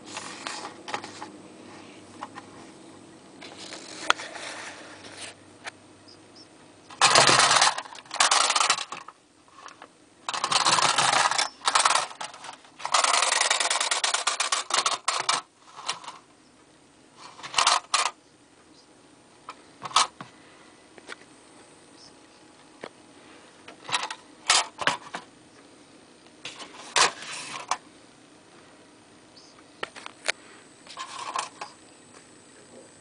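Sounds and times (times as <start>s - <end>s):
wind-up toy motor whirring and rattling: 3.4s - 5.4s, 6.9s - 16.2s, 17.2s - 18.2s.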